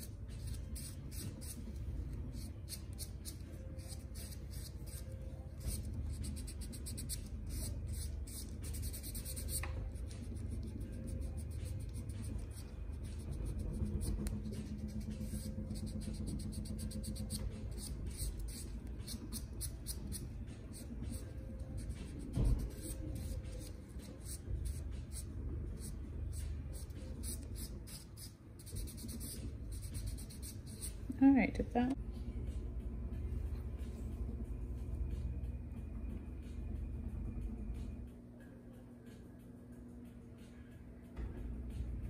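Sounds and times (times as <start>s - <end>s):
nail buffer scratching toenail: 0.0s - 31.0s.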